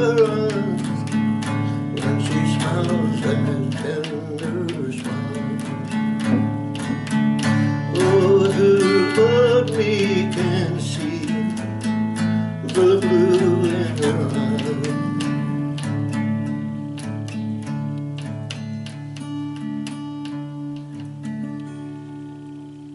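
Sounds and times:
man singing: 0:00.0 - 0:16.2
acoustic guitar strumming: 0:00.0 - 0:22.9.

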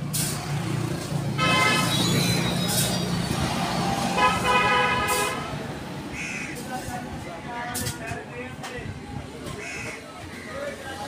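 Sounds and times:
low rumble of traffic: 0:00.0 - 0:11.0
vehicle horn tooting: 0:01.4 - 0:02.6, 0:04.2 - 0:05.6.

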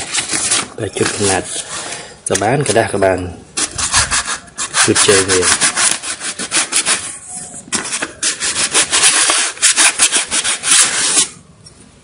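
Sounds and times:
memory module rubbing on paper: 0:03.6 - 0:11.4.

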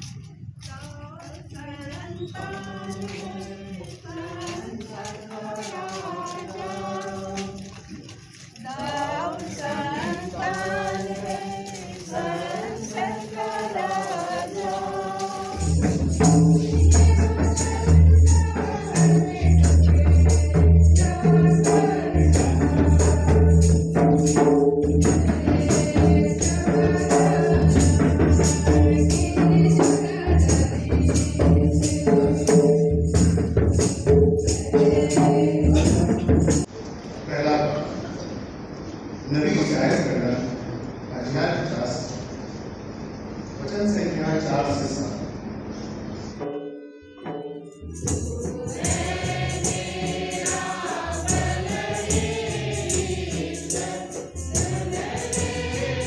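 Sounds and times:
congregation singing a hymn: 0:01.5 - 0:36.7, 0:46.5 - 0:56.0
tambourine: 0:01.6 - 0:36.7, 0:46.8 - 0:56.0
drum beat: 0:09.0 - 0:36.7, 0:47.3 - 0:56.0.

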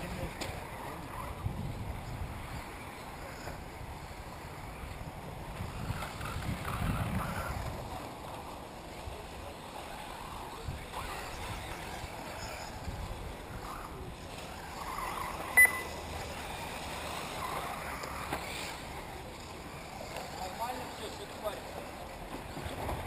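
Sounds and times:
electric toy cars whirring: 0:00.0 - 0:23.0
steady rushing noise: 0:00.0 - 0:23.0
short high electronic beep: 0:15.6 - 0:15.9.

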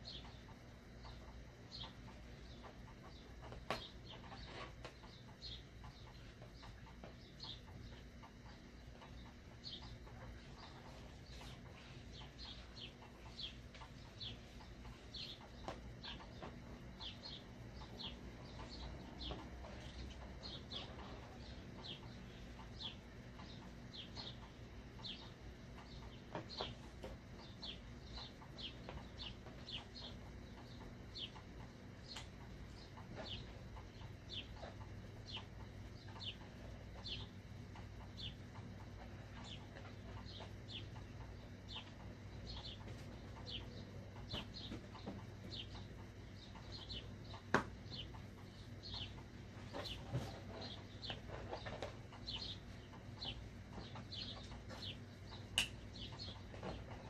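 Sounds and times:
small bird chirping: 0:00.0 - 0:57.0
sharp click: 0:55.5 - 0:55.9.

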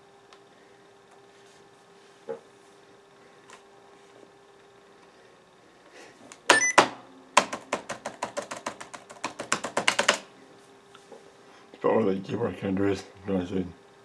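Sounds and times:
laptop keyboard keys clattering: 0:07.4 - 0:10.3.

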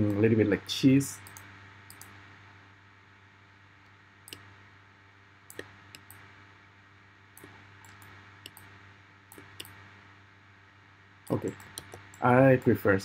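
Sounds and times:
faint low hum: 0:00.0 - 0:13.0
computer mouse clicking: 0:01.2 - 0:02.2, 0:04.3 - 0:04.5, 0:05.5 - 0:06.2, 0:07.4 - 0:08.7, 0:09.3 - 0:09.8, 0:11.3 - 0:12.7.

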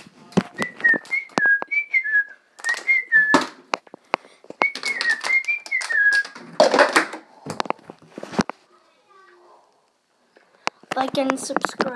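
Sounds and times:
person whistling a tune: 0:00.6 - 0:03.5, 0:04.6 - 0:06.4.

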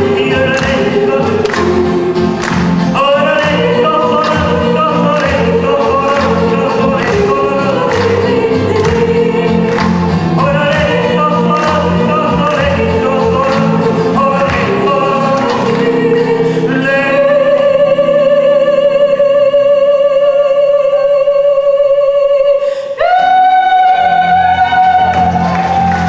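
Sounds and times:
drum kit: 0:00.0 - 0:16.6
electric guitar: 0:00.0 - 0:16.6
acoustic guitar: 0:00.0 - 0:26.0.

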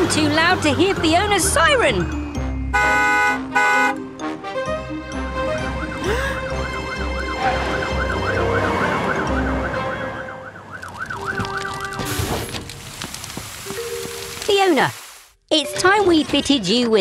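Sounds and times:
truck engines brumming: 0:00.0 - 0:12.6
cartoon fire engine siren wailing: 0:05.1 - 0:12.1.

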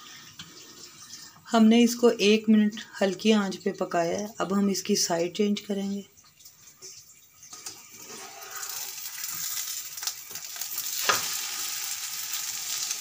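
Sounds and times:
omelette sizzling in pan: 0:07.5 - 0:13.0.

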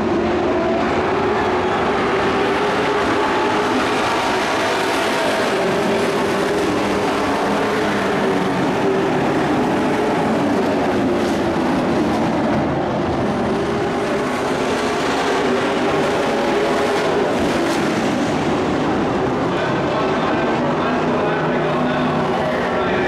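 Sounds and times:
race truck engine drone: 0:00.0 - 0:23.0.

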